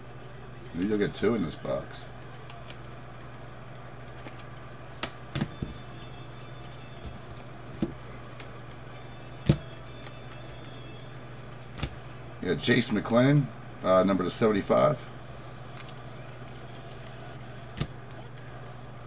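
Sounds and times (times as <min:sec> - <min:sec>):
low fan hum: 0:00.0 - 0:19.0
cards being flipped through: 0:02.1 - 0:12.0, 0:15.6 - 0:19.0.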